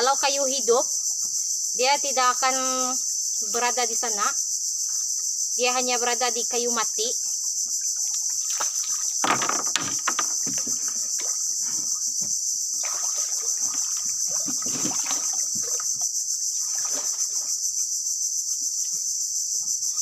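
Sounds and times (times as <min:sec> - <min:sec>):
high-pitched insect chorus: 0:00.0 - 0:20.0
small water splashes: 0:07.7 - 0:12.1, 0:12.7 - 0:17.7
wood knocks: 0:08.6 - 0:12.4.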